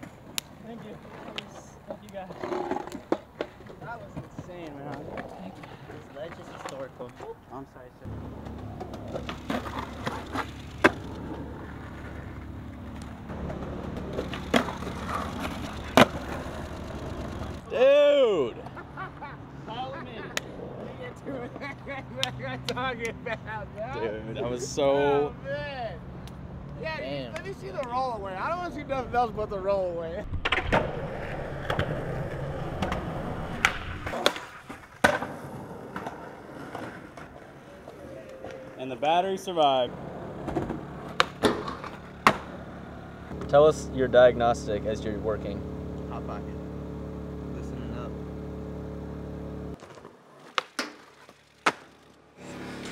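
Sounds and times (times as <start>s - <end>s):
skateboard wheels rolling on pavement: 0.0s - 24.0s, 24.6s - 46.0s, 48.1s - 52.9s
steady low hum: 7.9s - 17.7s
skateboard clacks: 8.4s - 17.7s, 30.4s - 38.7s, 40.3s - 43.5s, 49.8s - 52.9s
skateboard clacking on concrete: 13.0s - 17.6s, 40.4s - 42.6s, 49.8s - 52.0s.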